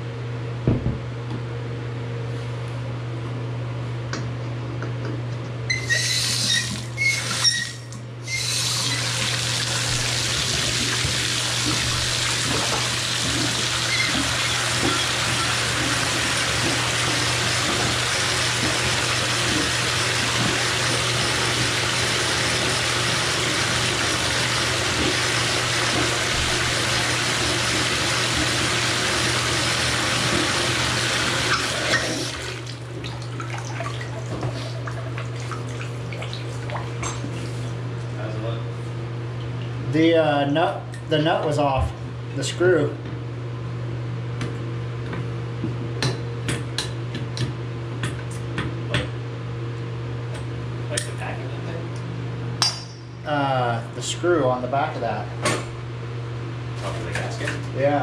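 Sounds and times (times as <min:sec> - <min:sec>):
water running into bathtub: 0:05.7 - 0:37.4.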